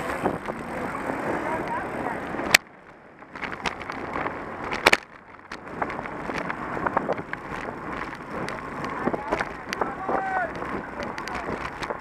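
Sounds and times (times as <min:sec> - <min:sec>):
wind rushing on microphone: 0:00.0 - 0:02.6, 0:03.3 - 0:12.0
bike tyres on asphalt: 0:00.0 - 0:12.0
small clicks: 0:02.5 - 0:12.0.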